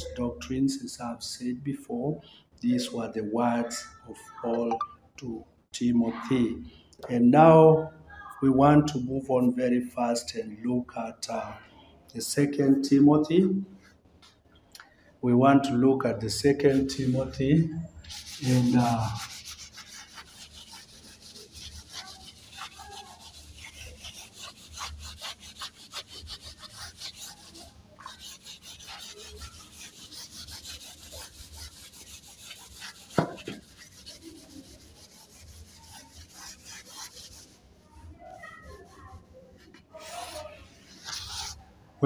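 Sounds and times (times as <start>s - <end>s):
duster rubbing on chalkboard: 16.4s - 41.6s
knock: 33.2s - 33.6s.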